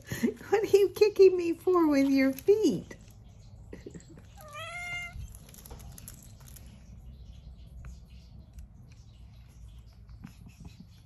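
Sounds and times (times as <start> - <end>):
cat meowing: 4.3 - 5.4.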